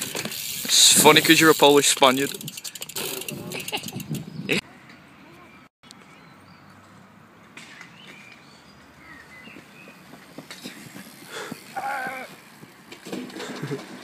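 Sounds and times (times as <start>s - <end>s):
bike clattering onto ground: 12.5s - 14.0s.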